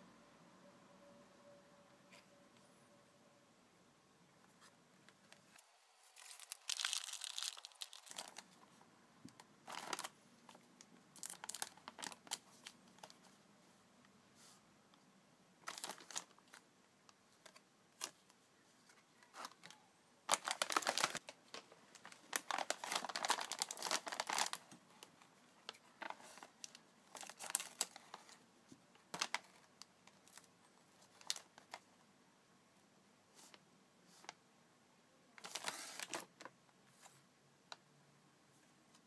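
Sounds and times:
foil packet crinkling and tearing: 6.0 - 8.6, 9.6 - 10.2, 11.2 - 13.2, 15.6 - 16.6, 19.2 - 24.8, 25.7 - 28.4, 29.1 - 30.5, 31.1 - 31.8, 35.4 - 36.3.

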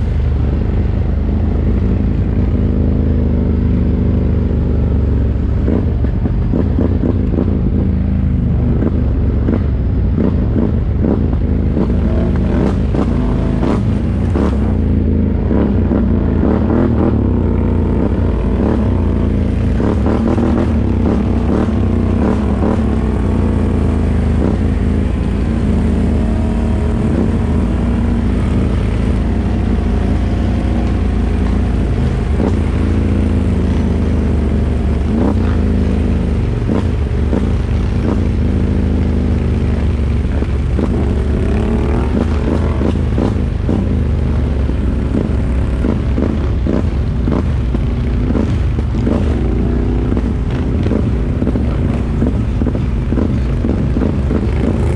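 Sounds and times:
quad bike engine revving: 0.0 - 54.9.

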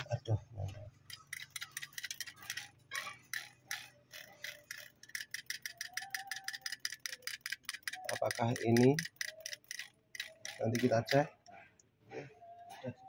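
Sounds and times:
rapid light metallic clicking: 1.0 - 11.4.

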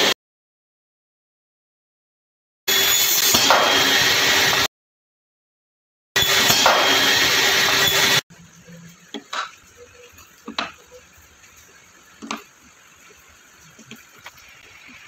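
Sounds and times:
table saw running: 2.7 - 4.7, 6.2 - 8.2.

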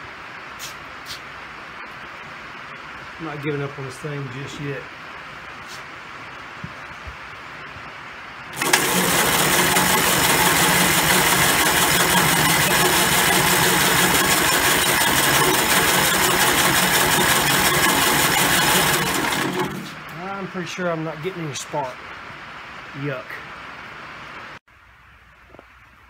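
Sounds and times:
electric starter cranking engine: 8.5 - 20.1.

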